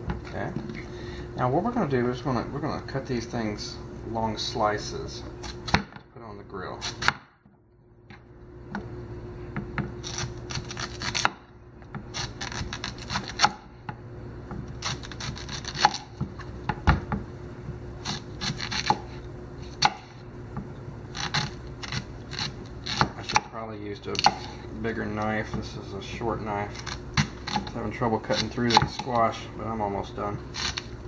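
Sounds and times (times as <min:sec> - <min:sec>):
faint steady hum: 0:00.0 - 0:31.0
knife scraping: 0:06.8 - 0:07.1, 0:10.0 - 0:11.3, 0:12.1 - 0:13.5, 0:14.7 - 0:16.1, 0:18.0 - 0:19.9, 0:21.1 - 0:23.4, 0:24.1 - 0:25.2, 0:26.5 - 0:29.3, 0:30.4 - 0:30.9
knife cutting on wooden board: 0:10.0 - 0:11.4, 0:12.1 - 0:13.6, 0:14.8 - 0:16.1, 0:18.0 - 0:20.0, 0:21.1 - 0:23.5, 0:24.1 - 0:24.6, 0:26.7 - 0:29.2, 0:30.5 - 0:30.9.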